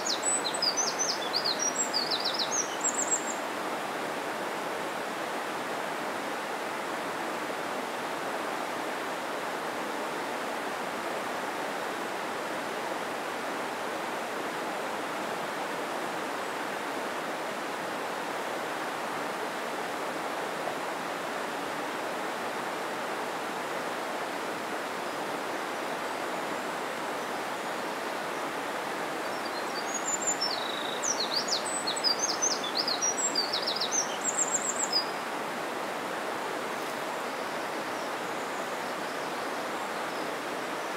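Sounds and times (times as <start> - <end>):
bird chirping: 0.0 - 3.4, 29.3 - 35.2
stream flowing over rocks: 0.0 - 40.9.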